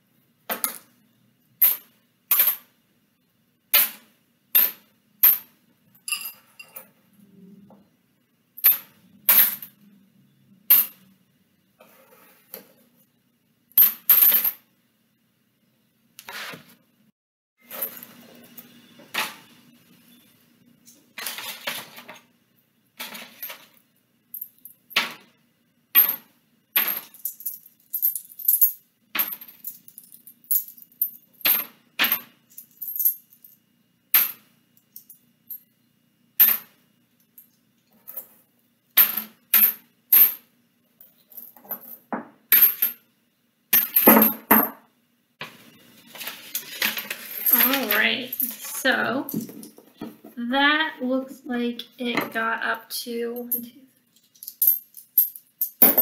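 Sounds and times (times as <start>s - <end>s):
coins clicking: 26.0s - 33.6s, 46.8s - 48.7s, 53.4s - 56.0s.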